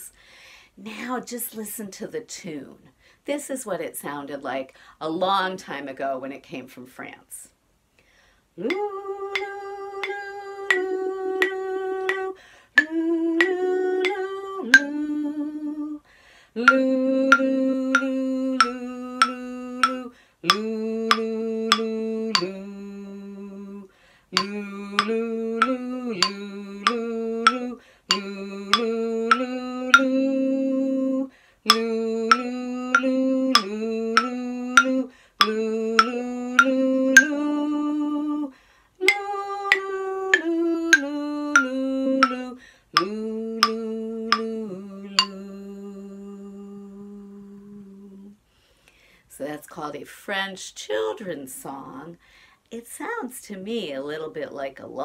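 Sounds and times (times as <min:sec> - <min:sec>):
woman humming a lullaby: 0:16.6 - 0:48.3
sharp taps: 0:16.7 - 0:22.5, 0:24.4 - 0:30.1, 0:31.7 - 0:37.3, 0:40.4 - 0:44.5.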